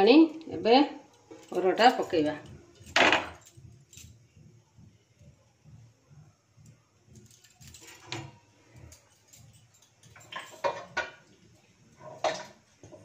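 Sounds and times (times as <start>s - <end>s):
kitchen utensils clattering: 7.4s - 13.0s.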